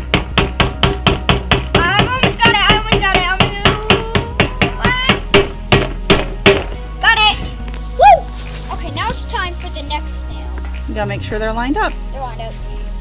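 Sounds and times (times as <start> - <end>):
hammer striking nail into wood: 0.1 - 6.8.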